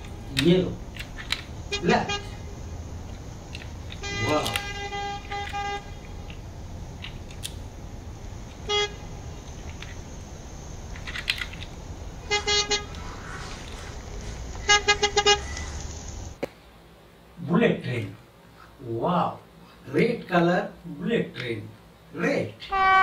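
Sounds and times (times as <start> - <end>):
plastic toy car clicks: 0.0 - 1.5, 3.1 - 6.4, 7.0 - 7.6, 10.9 - 11.7
steady low hum: 0.0 - 23.0
electronic car horn beeps: 1.7 - 2.5, 3.9 - 6.1, 8.5 - 9.2, 12.2 - 16.0, 22.7 - 23.0.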